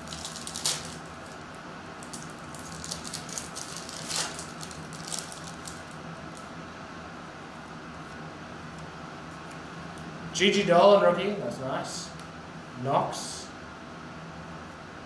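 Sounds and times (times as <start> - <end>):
foil wrapper tearing and crinkling: 0.0 - 1.4, 2.0 - 6.4
steady low hum: 0.0 - 15.0.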